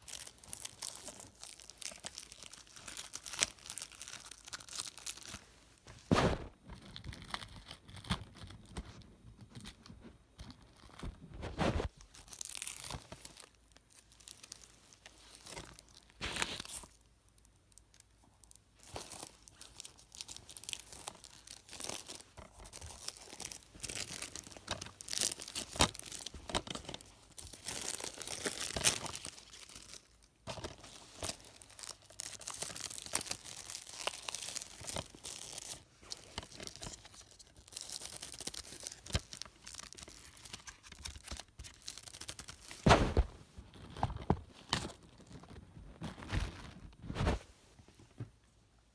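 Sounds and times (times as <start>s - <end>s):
packaging tearing and crinkling: 0.0s - 5.4s, 10.7s - 47.3s.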